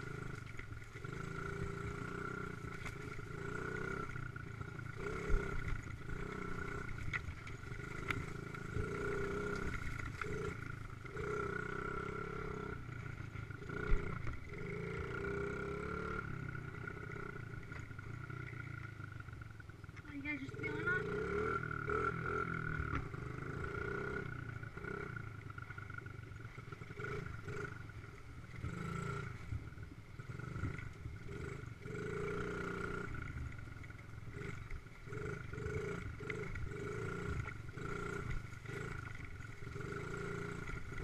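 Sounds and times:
dirt bike engine revving: 0:00.0 - 0:19.4, 0:20.1 - 0:41.0.

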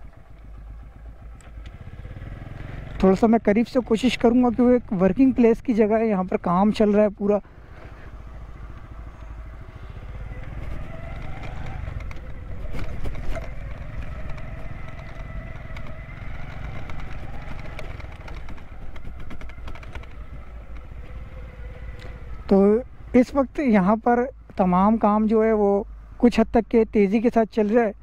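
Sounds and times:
engine running: 0:00.0 - 0:23.7
light clatter: 0:10.4 - 0:21.2.

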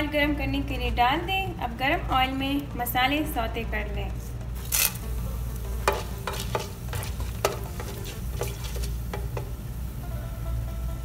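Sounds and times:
spices sizzling in hot oil: 0:04.6 - 0:11.0
spatula stirring in a pan: 0:05.1 - 0:09.8.

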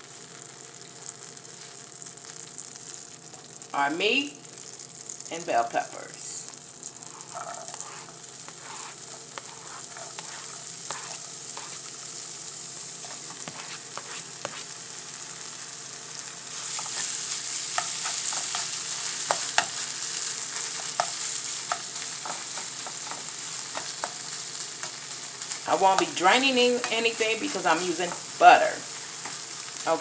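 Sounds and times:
food sizzling in a skillet: 0:00.0 - 0:30.0
spatula scraping a pan: 0:07.0 - 0:11.9, 0:13.0 - 0:14.8, 0:16.5 - 0:27.1.

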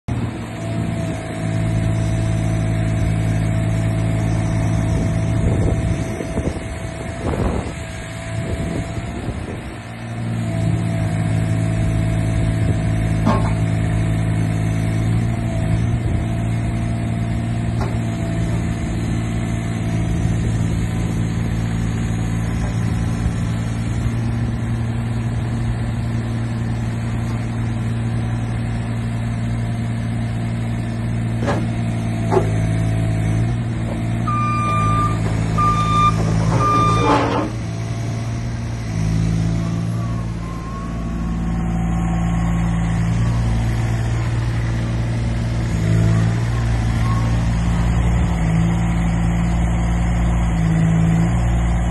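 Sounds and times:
excavator engine running: 0:00.1 - 0:51.9
travel alarm beeping: 0:34.3 - 0:37.2.

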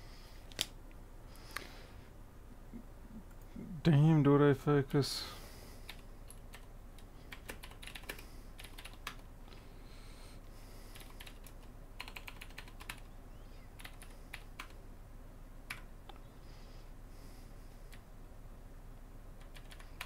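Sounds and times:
computer keyboard typing: 0:05.9 - 0:06.7, 0:07.3 - 0:09.2, 0:10.9 - 0:13.1, 0:13.8 - 0:14.8, 0:15.7 - 0:15.9, 0:19.4 - 0:20.0.

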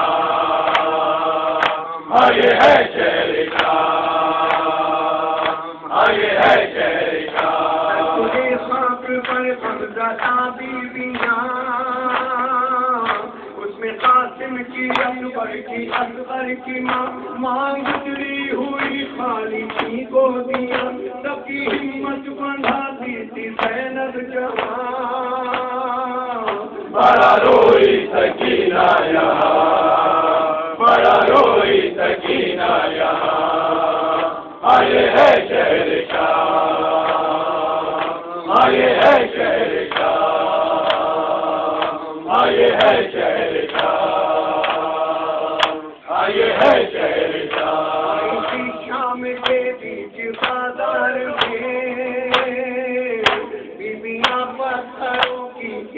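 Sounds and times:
group of men chanting: 0:00.0 - 0:14.1, 0:26.4 - 0:55.9
man singing into microphone: 0:07.9 - 0:27.4, 0:48.1 - 0:55.9.

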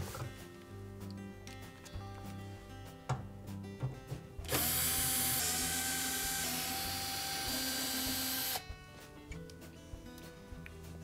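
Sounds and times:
drill motor whining: 0:04.4 - 0:08.6
drill clicks: 0:04.5 - 0:08.6.

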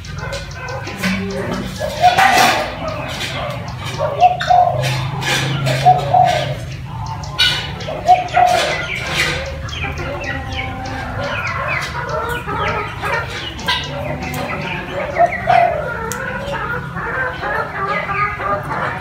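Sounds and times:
high bird chirps: 0:00.0 - 0:16.9
low coo-like bird notes: 0:00.0 - 0:19.0.

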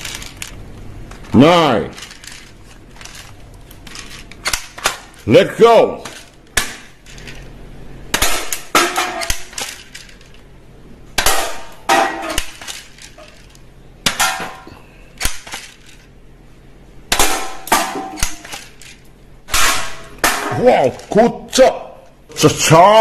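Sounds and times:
metal cans clanking: 0:11.2 - 0:13.5.

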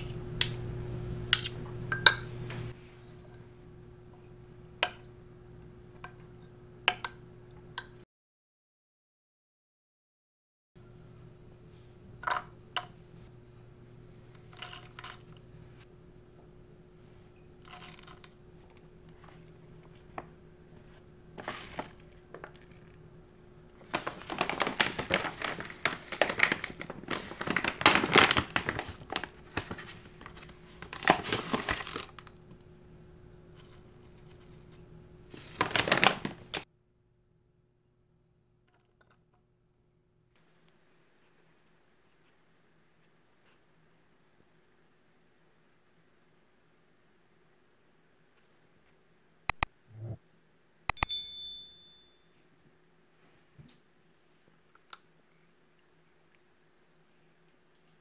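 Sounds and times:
faint steady hum: 0:00.0 - 0:08.0, 0:10.8 - 0:58.0
plastic pouch crinkling: 0:21.4 - 0:22.9, 0:23.8 - 0:32.4, 0:35.4 - 0:36.6.

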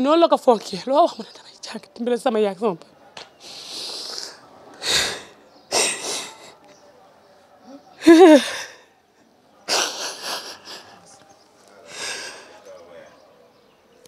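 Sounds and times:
woman sobbing: 0:08.0 - 0:08.8, 0:09.7 - 0:11.0.

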